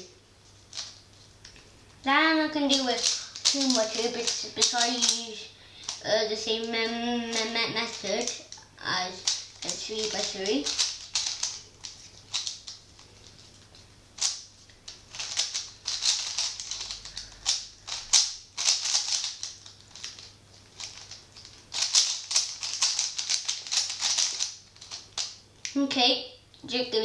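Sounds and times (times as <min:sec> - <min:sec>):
puzzle cube layers clicking: 0:02.9 - 0:05.2, 0:14.2 - 0:20.2, 0:20.8 - 0:25.3.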